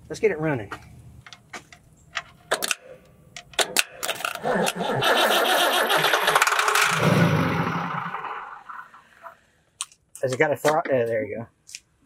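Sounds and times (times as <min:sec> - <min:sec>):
sharp starter clicks: 0:03.6 - 0:08.3.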